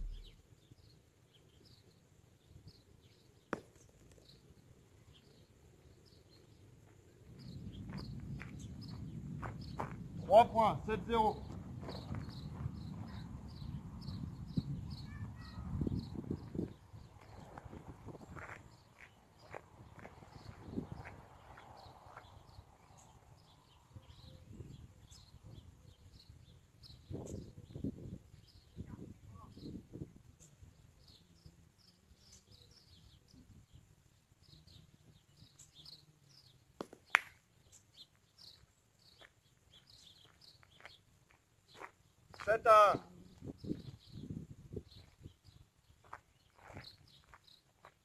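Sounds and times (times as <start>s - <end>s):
small birds chirping: 0.0s - 48.0s
footsteps crunching on gravel: 17.2s - 22.3s, 39.1s - 42.5s, 46.0s - 48.0s.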